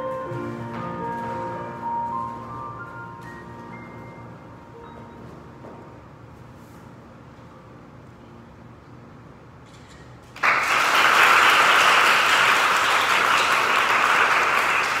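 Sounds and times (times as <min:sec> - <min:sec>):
audience applause: 0:10.4 - 0:15.0.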